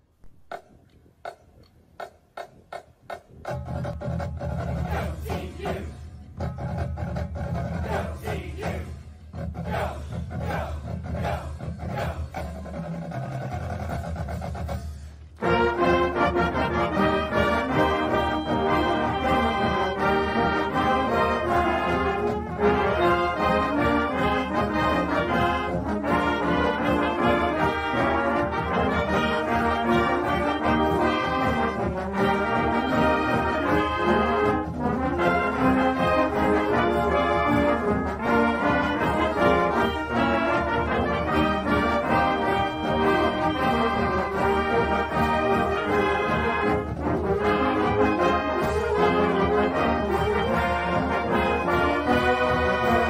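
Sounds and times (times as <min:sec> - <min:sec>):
brass instrumental music: 0:03.4 - 0:53.0.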